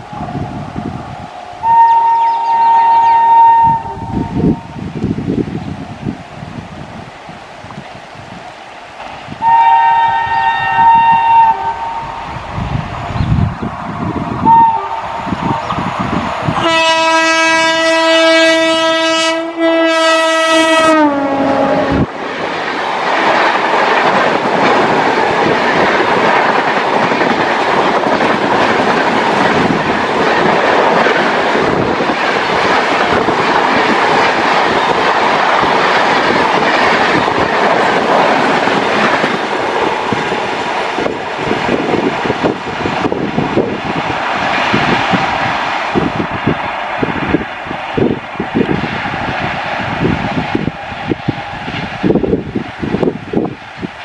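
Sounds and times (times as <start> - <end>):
train wheels rushing on rails: 0.0 - 54.0
locomotive horn blast: 1.6 - 4.3, 9.4 - 12.1, 14.4 - 15.0, 16.6 - 22.1.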